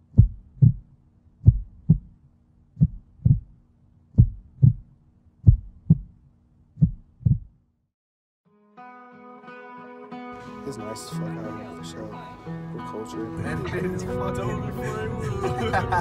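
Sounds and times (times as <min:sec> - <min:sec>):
heartbeat thumps: 0:00.0 - 0:06.2, 0:06.8 - 0:07.6.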